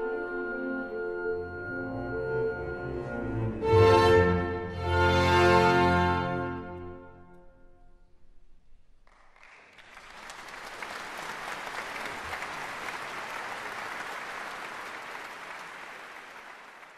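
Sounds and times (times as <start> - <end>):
audience applauding: 9.0 - 16.9.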